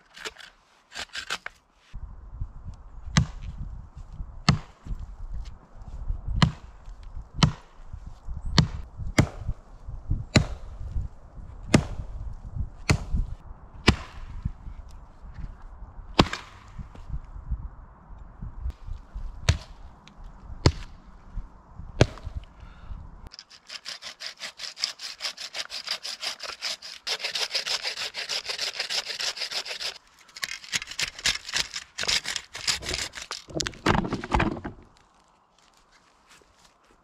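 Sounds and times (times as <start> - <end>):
wood chopping strikes: 7.4 - 7.7, 8.6 - 9.5, 10.4 - 10.6, 11.7 - 12.0, 12.9 - 13.2, 13.8 - 14.4, 16.2 - 16.7, 19.4 - 19.8, 20.6 - 21.0, 22.0 - 22.4.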